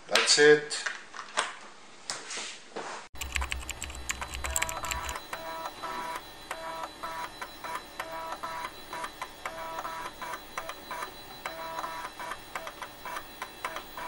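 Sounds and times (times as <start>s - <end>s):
electronic jingle with clicks: 3.2s - 6.6s.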